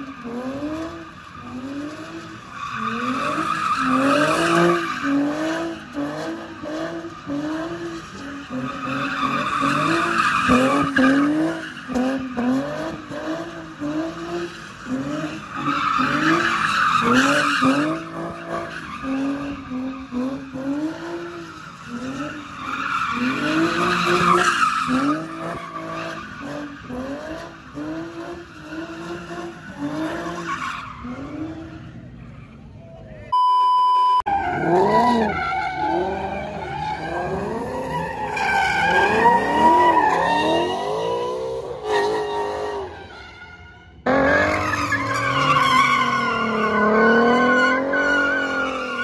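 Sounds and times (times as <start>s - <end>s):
tires squealing: 0.0s - 32.8s, 34.3s - 49.0s
car engine revving: 44.0s - 48.8s.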